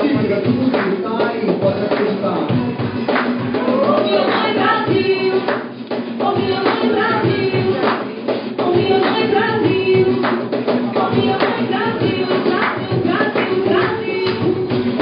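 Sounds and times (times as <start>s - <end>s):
man singing: 0.0s - 3.0s
cajon beat: 0.0s - 15.0s
strummed acoustic guitars: 0.0s - 15.0s
woman singing: 3.5s - 15.0s.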